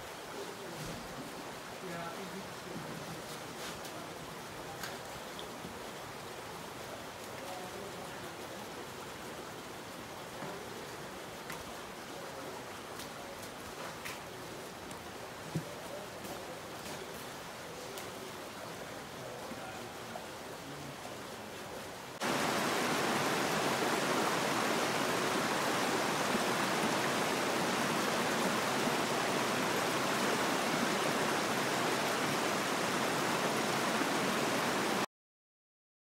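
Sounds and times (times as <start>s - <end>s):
water trickling: 22.2s - 35.0s
water rushing down gravel ditch: 22.2s - 35.1s.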